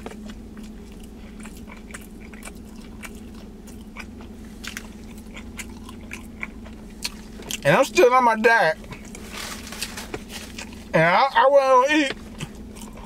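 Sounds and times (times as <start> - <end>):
man chewing: 0.0 - 7.9, 8.7 - 10.9, 12.1 - 13.0
steady low hum: 0.0 - 13.0.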